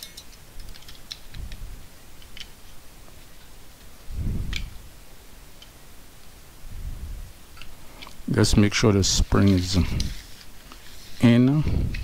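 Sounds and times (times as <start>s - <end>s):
plastic clicks and handling: 0.0s - 1.5s.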